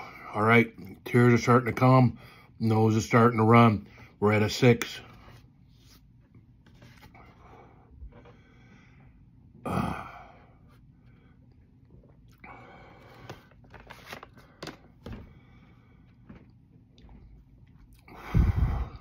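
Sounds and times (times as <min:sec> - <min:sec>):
plastic wipes pack crinkling: 0:13.0 - 0:15.2.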